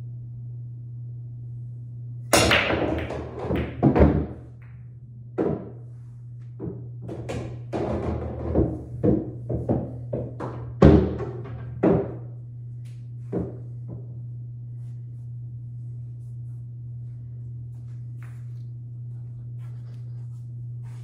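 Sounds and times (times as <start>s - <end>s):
steady low hum: 0.0s - 21.0s
pool balls knocking and clicking: 2.3s - 14.3s.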